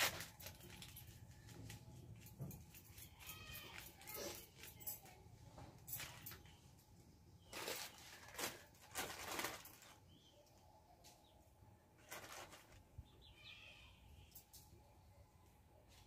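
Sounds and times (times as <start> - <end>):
plastic packets crinkling: 0.0 - 1.8, 7.4 - 10.2, 12.0 - 13.0.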